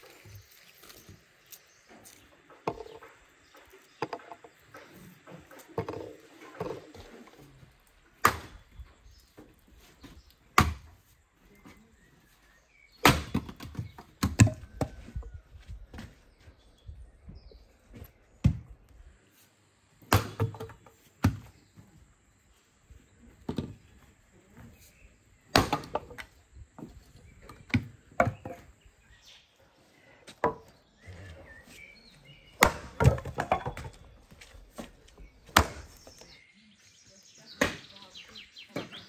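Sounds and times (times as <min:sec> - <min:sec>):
axe chopping firewood: 0:08.2 - 0:08.8, 0:10.5 - 0:11.0, 0:12.9 - 0:15.1, 0:20.0 - 0:21.5, 0:25.5 - 0:26.3, 0:27.6 - 0:28.7, 0:32.5 - 0:34.1, 0:34.8 - 0:36.3, 0:37.5 - 0:38.0.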